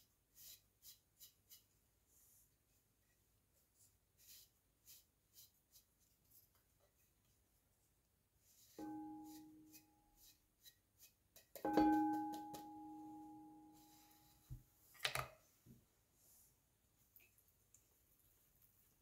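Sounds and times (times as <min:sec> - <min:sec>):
glass bowl ringing: 0:11.7 - 0:13.9.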